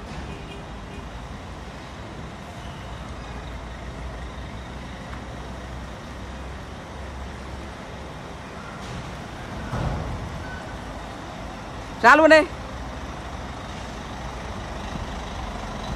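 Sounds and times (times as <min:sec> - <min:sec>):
diesel engine low rumble: 0:00.0 - 0:15.9.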